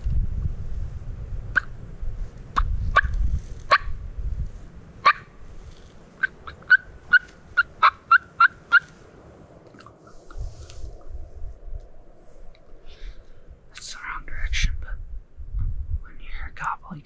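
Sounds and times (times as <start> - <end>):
wind rumble on microphone: 0.0 - 17.0
turkey yelping: 2.6 - 3.9, 5.0 - 5.4, 6.2 - 9.0.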